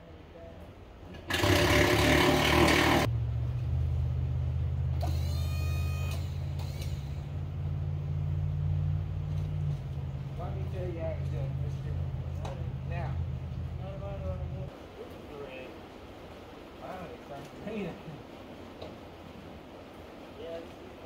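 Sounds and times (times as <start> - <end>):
impact wrench running: 1.2 - 3.1
low steady motor drone: 1.3 - 14.8
short rising squeal: 1.8 - 7.6.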